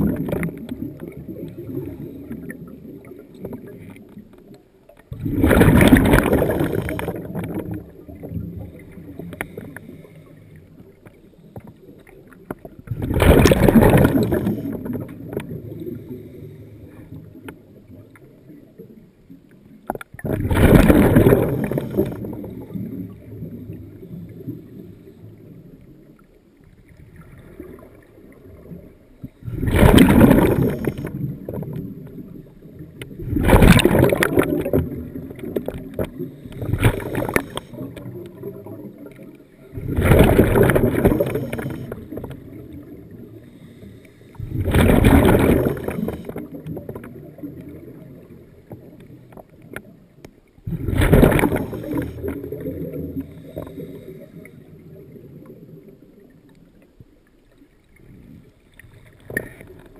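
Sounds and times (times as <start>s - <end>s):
exhaled bubbles bursting underwater: 0.0s - 4.2s, 5.0s - 10.1s, 11.6s - 16.3s, 20.1s - 25.7s, 26.8s - 43.4s, 44.4s - 50.0s, 50.6s - 56.4s
quiet underwater rumbling: 0.0s - 59.9s.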